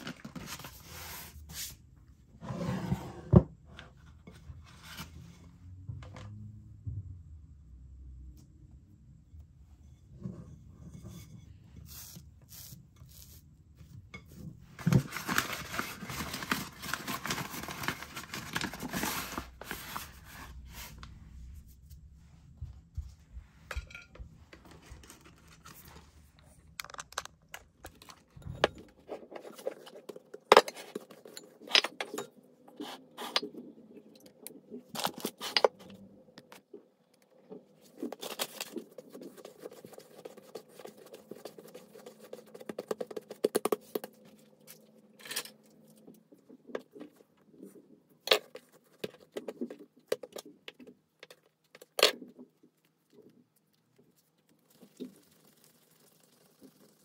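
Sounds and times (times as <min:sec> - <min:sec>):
kitchen items clicking and scraping: 0:23.7 - 0:33.6.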